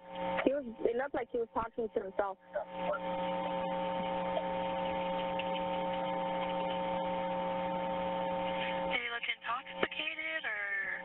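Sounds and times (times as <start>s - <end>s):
electronic hum: 0.0s - 11.0s.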